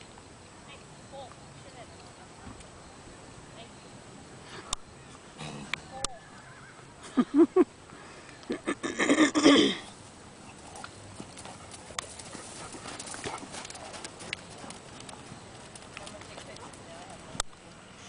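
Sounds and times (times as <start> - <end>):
horse hoofbeats on dirt: 9.9 - 17.7.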